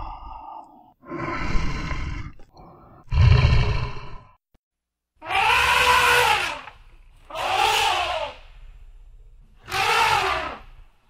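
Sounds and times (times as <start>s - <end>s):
animal calling: 5.2s - 6.7s, 7.3s - 8.5s, 9.6s - 10.7s.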